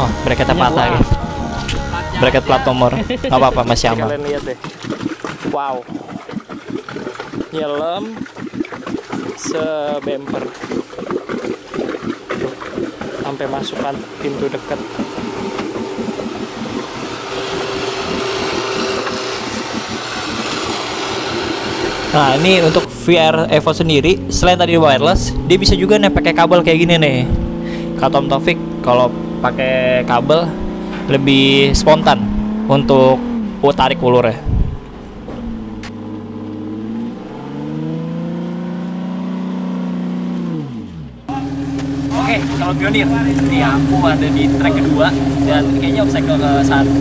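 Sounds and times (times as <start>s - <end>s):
engine rumbling: 0.0s - 47.0s
electric winch whining: 13.9s - 22.9s.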